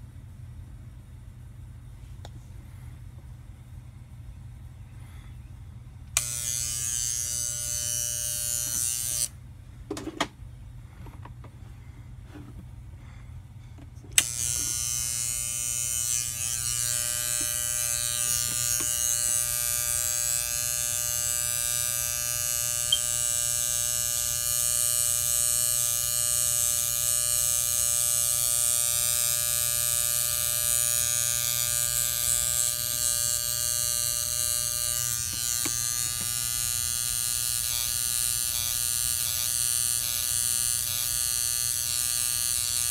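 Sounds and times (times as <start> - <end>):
hair clippers humming: 6.0 - 9.4, 14.1 - 42.9.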